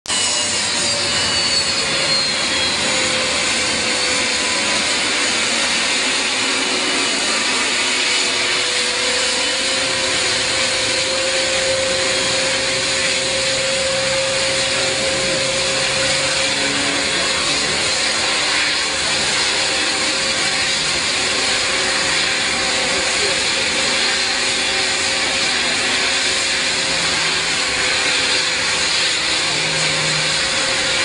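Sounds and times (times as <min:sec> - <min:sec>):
jet engines whining: 0:00.1 - 0:31.0.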